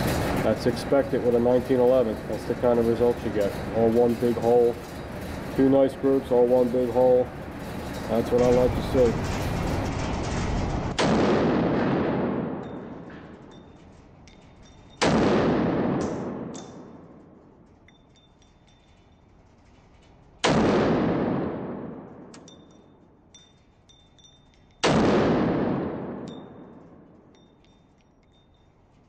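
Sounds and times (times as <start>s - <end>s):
faint metallic clinks: 12.6s - 15.1s, 16.4s - 20.4s, 22.2s - 24.9s, 26.1s - 29.0s
pistol shots echoing: 15.0s - 17.2s, 20.4s - 22.3s, 24.8s - 27.0s.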